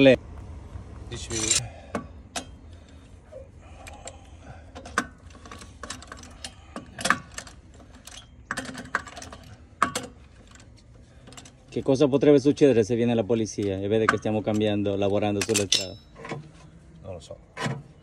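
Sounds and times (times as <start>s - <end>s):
hand tools clinking against metal: 1.2s - 1.6s, 3.8s - 12.0s, 13.4s - 16.4s.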